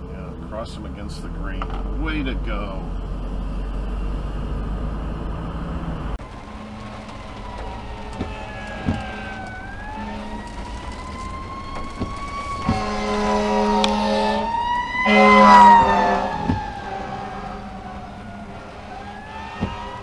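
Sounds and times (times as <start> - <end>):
fire truck siren wailing: 5.3 - 20.0
long horn blasts: 6.5 - 11.2, 12.6 - 18.1.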